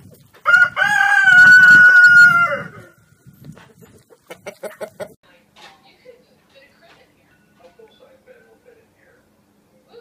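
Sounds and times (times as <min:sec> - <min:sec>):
rooster crowing: 0:00.4 - 0:02.9.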